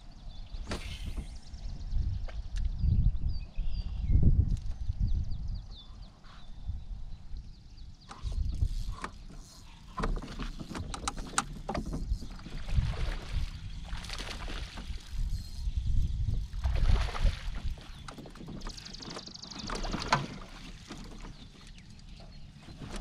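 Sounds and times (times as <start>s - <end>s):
water and wind rumble: 0.0s - 23.0s
knocks and clicks on boat deck: 8.9s - 12.5s.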